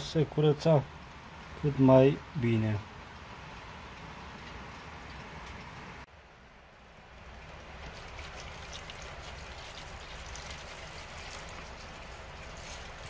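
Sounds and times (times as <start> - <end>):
liquid pouring into a container: 7.7 - 13.0.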